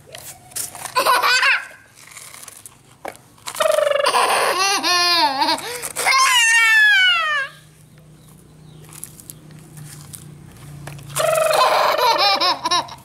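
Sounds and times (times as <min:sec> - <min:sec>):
toddler squealing and laughing: 0:00.8 - 0:01.9, 0:03.6 - 0:07.7, 0:11.1 - 0:13.0.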